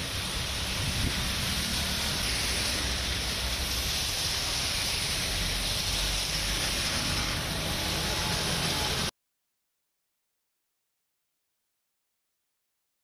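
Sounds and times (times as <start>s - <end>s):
engines rumbling: 0.0s - 9.1s
rain: 0.0s - 9.1s
tyres spraying through water: 0.0s - 9.1s.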